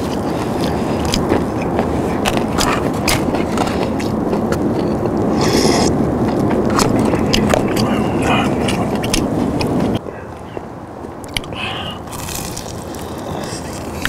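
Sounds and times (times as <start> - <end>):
low rumble: 0.0 - 11.2
slurp: 4.8 - 6.0.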